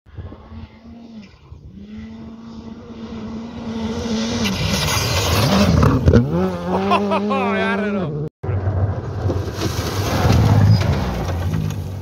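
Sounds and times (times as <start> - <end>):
rally car engine at high revs: 0.1 - 8.3
gravel and dust noise: 0.1 - 12.0.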